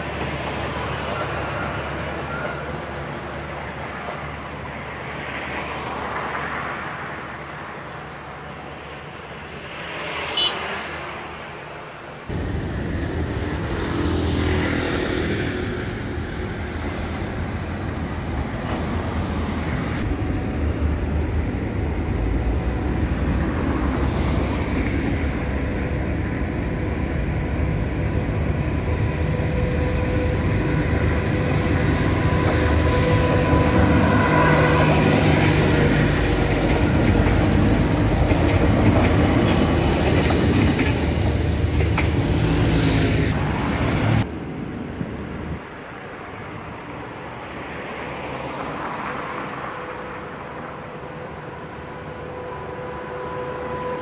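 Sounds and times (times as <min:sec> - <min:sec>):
passenger train running: 0:00.0 - 0:54.0
road traffic passing: 0:00.0 - 0:54.0
steady low rumble: 0:12.3 - 0:13.9.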